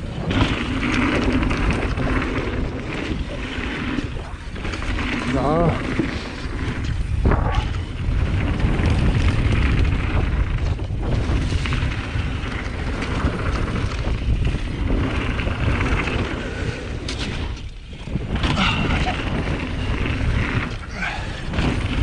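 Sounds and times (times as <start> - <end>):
bike tyres rumbling over dirt: 0.0 - 22.0
wind buffeting microphone: 0.0 - 22.0.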